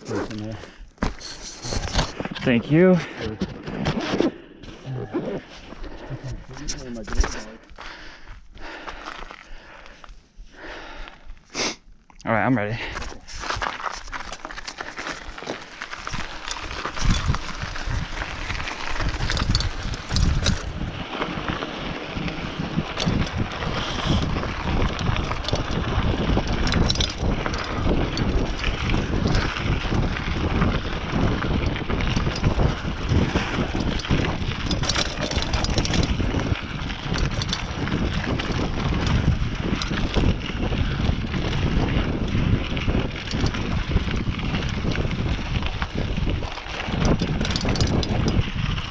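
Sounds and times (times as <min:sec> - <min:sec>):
bike rattling and clicking: 0:00.0 - 0:04.4, 0:05.8 - 0:10.0, 0:12.8 - 0:48.9
bike tyres crunching over dirt: 0:00.0 - 0:48.9
wind on microphone: 0:16.1 - 0:48.9.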